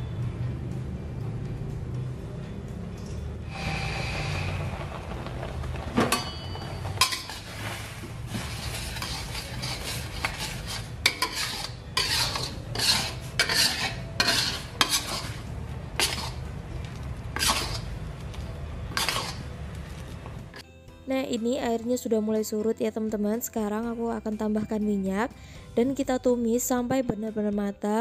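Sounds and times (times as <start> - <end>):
metal spatula scraping wok: 6.0 - 16.6, 17.3 - 18.0, 18.8 - 19.6.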